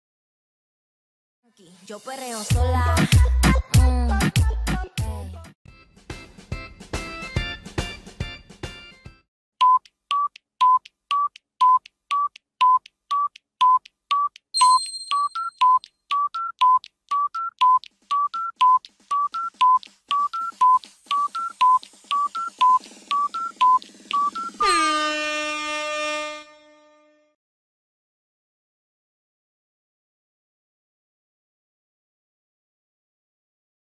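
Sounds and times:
countdown timer beeping: 9.6 - 25.4
loud buzzer blast: 24.4 - 27.3.

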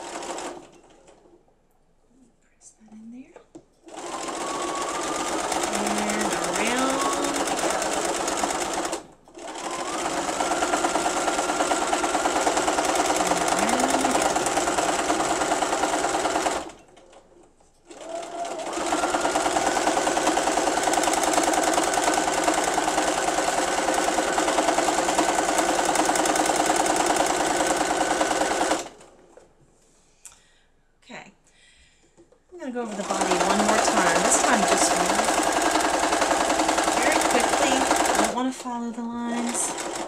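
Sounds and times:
sewing machine stitching: 0.0 - 1.4, 3.8 - 29.5, 32.7 - 40.0.

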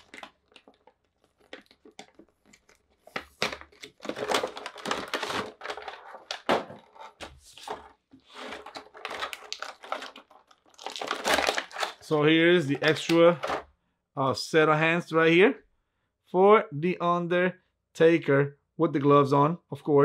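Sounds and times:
plastic packaging crinkling: 0.0 - 13.6.

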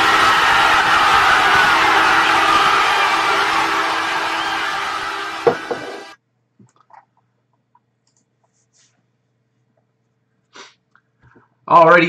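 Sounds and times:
crowd cheering: 0.0 - 6.2
music: 0.0 - 6.2.

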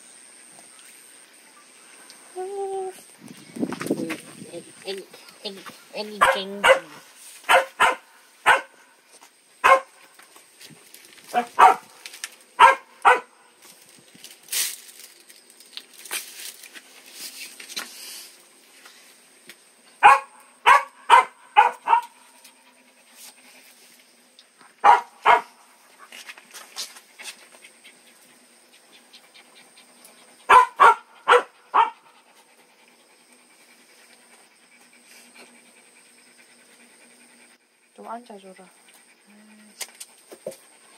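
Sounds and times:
dog barking: 6.2 - 8.8, 9.6 - 10.0, 11.4 - 11.9, 12.6 - 13.3, 20.0 - 22.2, 24.8 - 25.6, 30.5 - 32.0.

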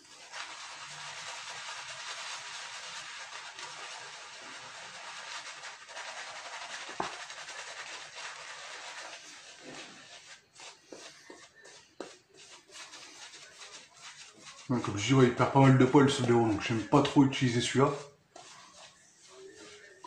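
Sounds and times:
shaving brush swishing lather: 0.0 - 20.0.

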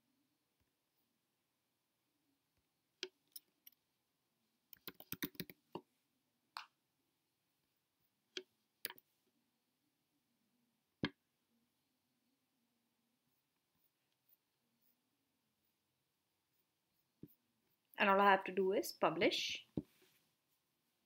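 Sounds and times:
keyboard typing: 4.8 - 5.6.

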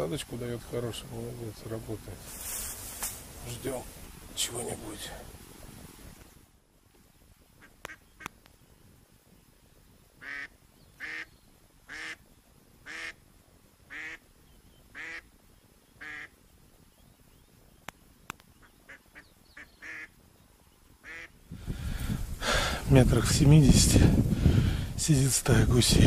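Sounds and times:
faint sharp clicks: 7.8 - 8.6, 17.8 - 18.5
duck quacking: 10.2 - 11.3, 11.9 - 12.2, 12.9 - 13.2, 13.9 - 14.2, 15.0 - 15.3, 16.0 - 16.3, 18.9 - 20.1, 21.0 - 21.3.

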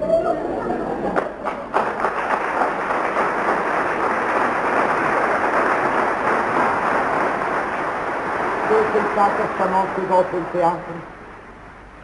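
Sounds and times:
audience applauding: 1.1 - 10.5.

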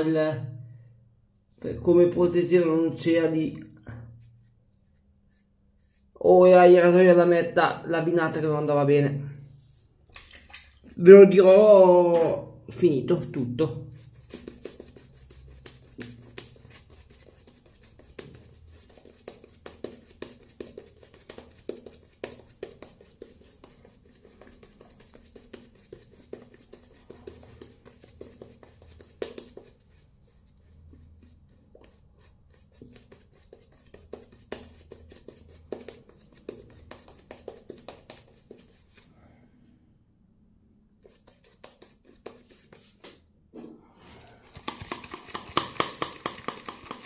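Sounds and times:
shaving brush scratching on skin: 4.2 - 6.2, 13.8 - 39.1, 41.0 - 43.2, 44.5 - 47.0.

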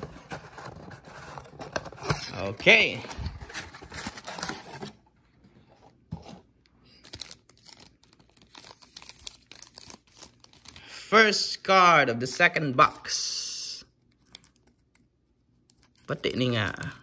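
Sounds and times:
plastic wrapping crinkling and tearing: 7.0 - 10.9.

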